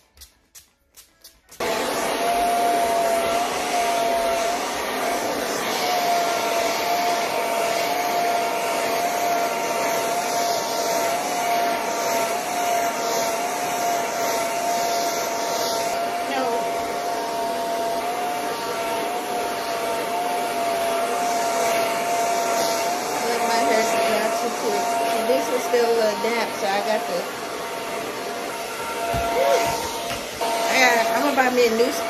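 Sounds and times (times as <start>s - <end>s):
hair dryer running: 1.2s - 32.0s.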